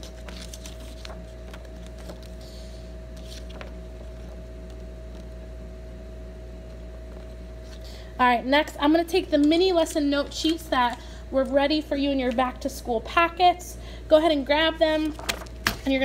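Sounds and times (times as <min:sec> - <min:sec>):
binder pages clicking and rustling: 0:00.0 - 0:02.4, 0:03.1 - 0:05.4, 0:14.9 - 0:16.0
low room hum: 0:00.0 - 0:16.0.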